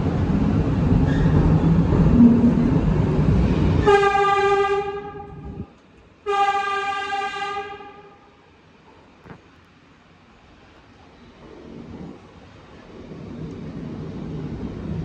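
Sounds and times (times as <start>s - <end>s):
subway train rumbling in tunnel: 0.0s - 15.0s
train horn blasts: 3.8s - 8.2s.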